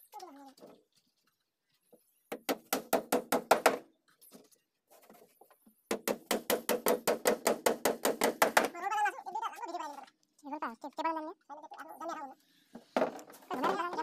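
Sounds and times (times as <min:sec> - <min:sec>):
hammer driving nails into wood: 0:02.3 - 0:03.9, 0:05.9 - 0:08.7.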